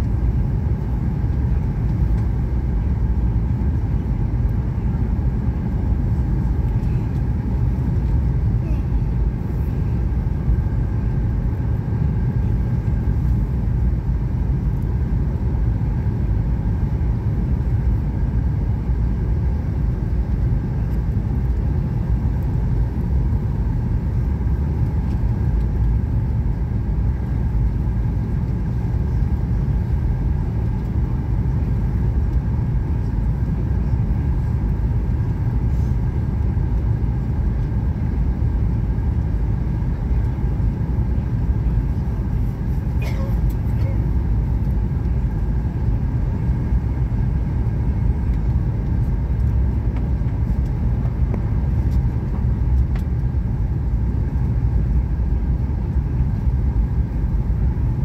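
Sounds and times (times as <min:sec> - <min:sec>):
jet engines rumbling: 0:00.0 - 0:58.0
airflow over fuselage: 0:19.3 - 0:58.0.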